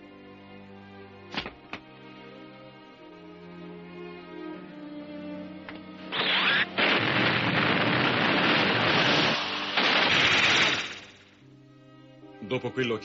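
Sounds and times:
soft orchestral music: 0.0s - 6.8s, 11.4s - 13.0s
fire roaring with rushing hiss: 6.1s - 11.2s.

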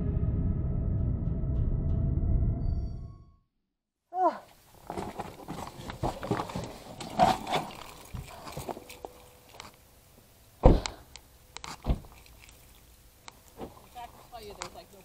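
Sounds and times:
rustling and handling noise: 4.5s - 15.0s
car door shutting: 10.6s - 11.0s, 11.8s - 12.2s
small thump: 10.6s - 11.0s, 11.8s - 12.2s.

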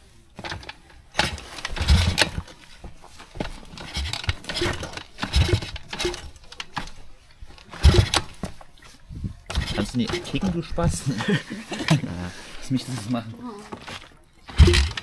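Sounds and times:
engine kickstarter strokes: 0.4s - 2.6s, 3.4s - 7.0s, 7.6s - 8.6s, 9.4s - 11.0s, 13.8s - 15.0s.

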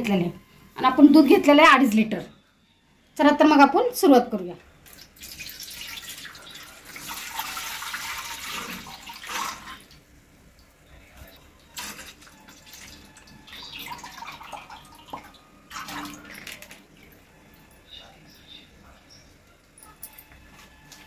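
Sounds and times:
milk pouring into metal pot: 4.9s - 9.9s, 11.6s - 17.2s.

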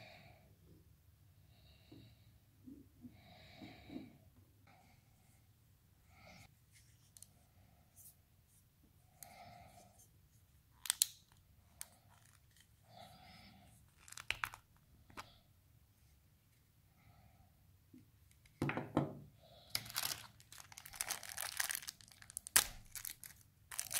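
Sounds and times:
rubbing and scraping handling noise: 6.4s - 8.7s, 9.7s - 12.8s.

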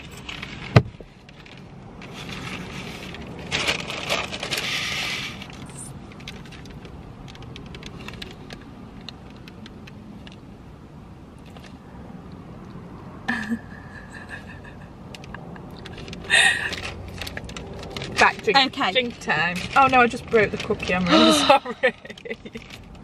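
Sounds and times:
rustling: 0.0s - 9.6s, 15.2s - 23.0s.

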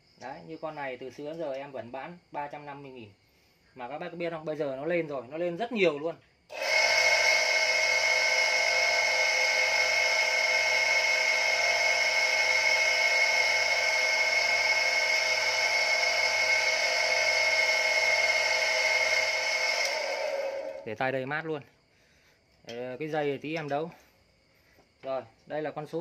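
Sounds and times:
electric water pump whining: 6.5s - 20.9s.

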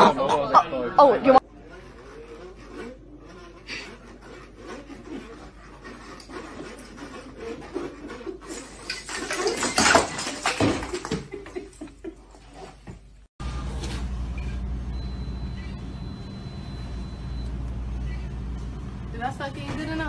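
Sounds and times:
baubles clattering on floor: 8.9s - 11.7s
christmas tree crashing over: 9.0s - 11.3s.

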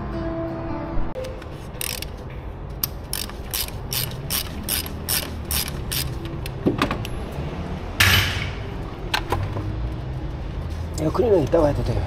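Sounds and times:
ratchet wrench clicking: 1.2s - 6.6s.

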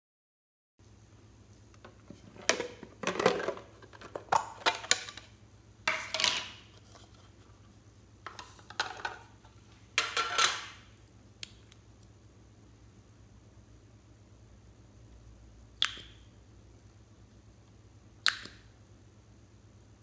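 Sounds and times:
plastic cases clicking and clattering: 1.8s - 5.3s.

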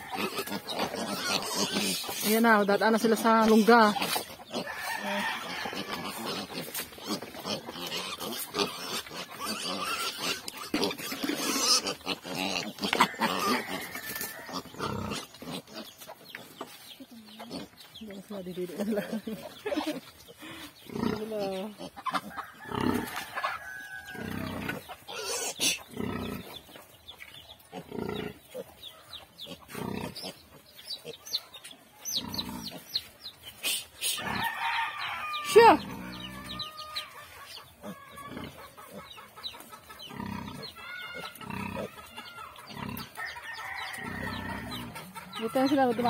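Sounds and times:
rooster crowing: 0.0s - 0.7s, 4.6s - 6.2s, 13.0s - 14.6s, 22.4s - 24.5s, 34.2s - 37.2s, 40.8s - 45.8s
pig grunting: 0.0s - 2.3s, 3.1s - 15.9s, 19.8s - 23.2s, 24.2s - 26.6s, 27.7s - 28.8s, 29.4s - 30.4s, 32.2s - 32.8s, 35.6s - 36.8s, 40.1s - 42.1s, 44.0s - 46.0s
chickens clucking: 0.0s - 46.0s.

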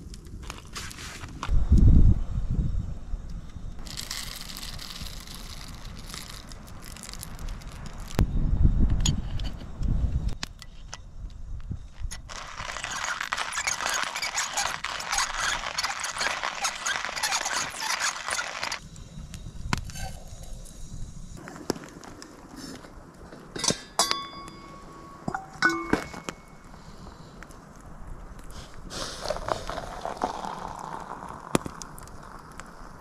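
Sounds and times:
coffee grinder crunching beans: 3.8s - 8.2s, 12.3s - 18.8s, 29.2s - 31.8s.

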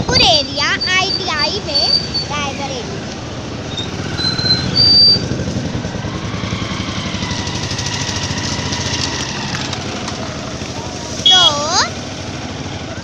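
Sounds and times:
motorbike engine running: 0.0s - 13.0s
short high-pitched beep: 11.2s - 11.7s.

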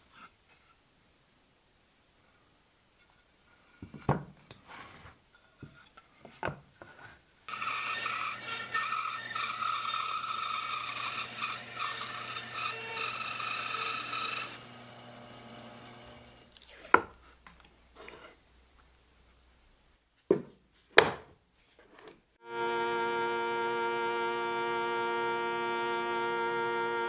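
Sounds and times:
band saw cutting wood: 7.5s - 17.0s, 22.4s - 27.0s.

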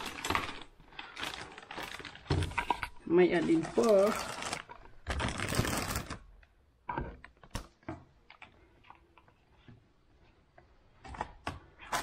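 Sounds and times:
plastic packaging handled: 0.0s - 6.6s.

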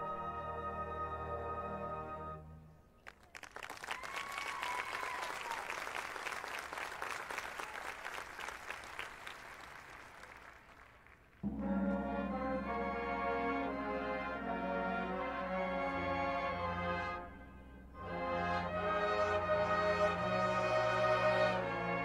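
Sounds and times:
audience applauding: 3.0s - 11.4s
marching band brass chords: 11.4s - 22.0s.

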